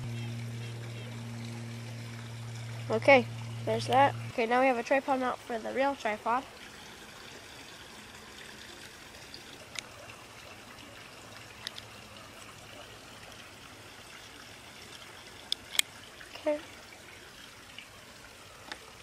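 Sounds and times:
small plastic parts clicking: 15.5s - 15.9s.

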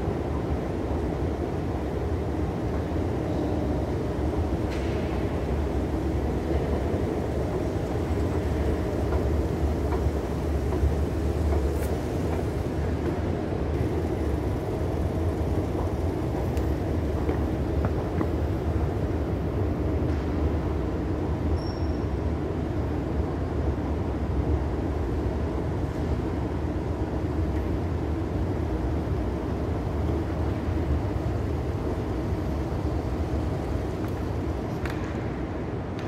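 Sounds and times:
escalator machinery rumbling: 0.0s - 20.0s.

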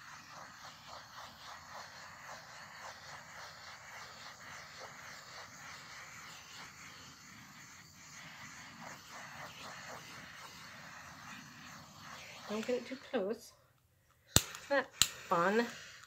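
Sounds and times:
butane torch hissing: 0.0s - 13.6s, 14.3s - 16.0s.

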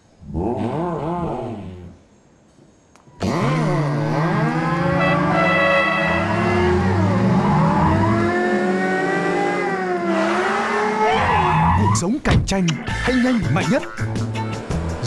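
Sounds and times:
car engine revving: 3.2s - 11.4s, 14.0s - 15.0s.

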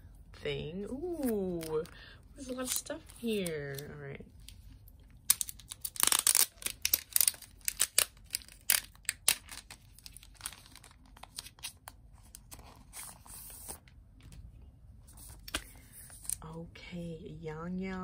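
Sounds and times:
plastic envelope crinkling: 1.1s - 13.8s.

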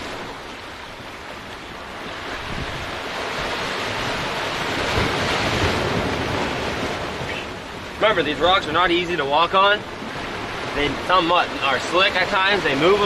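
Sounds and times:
wind buffeting microphone: 0.0s - 8.8s
surf washing against rocks: 0.0s - 13.0s.

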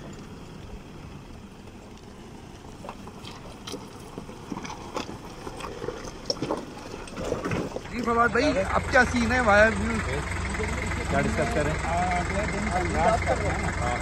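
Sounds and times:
tyres crunching on stones: 0.0s - 9.3s
low engine rumble: 0.0s - 14.0s.

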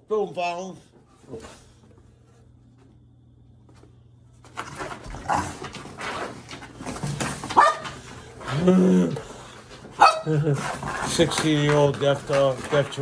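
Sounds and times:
faint hum: 0.0s - 11.1s
dogs scuffling: 3.6s - 13.0s
dogs growling: 4.9s - 6.2s, 8.0s - 11.2s.

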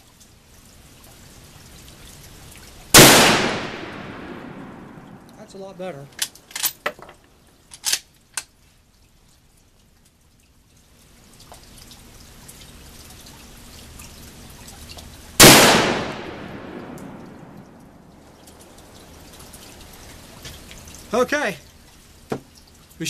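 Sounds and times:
rifle shot echoing: 3.0s - 5.3s, 15.4s - 17.7s
rifle bolt clicks: 7.8s - 8.5s.

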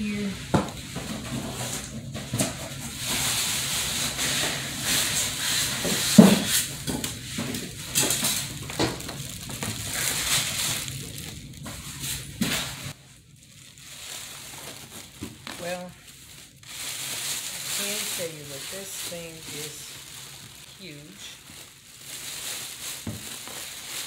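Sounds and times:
plastic wrapping crinkling: 0.0s - 24.0s.

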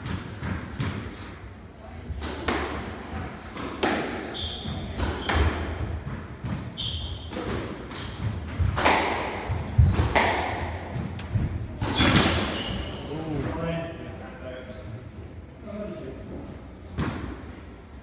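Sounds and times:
shoes squeaking on wooden floor: 6.7s - 8.8s.

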